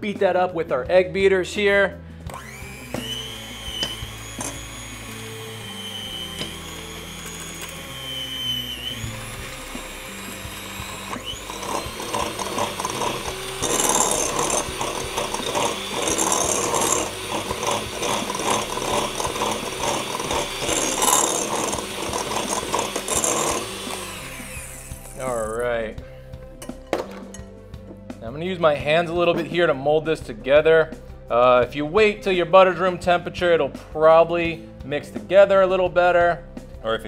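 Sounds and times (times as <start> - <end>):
electric hand mixer whine: 2.3 - 25.7.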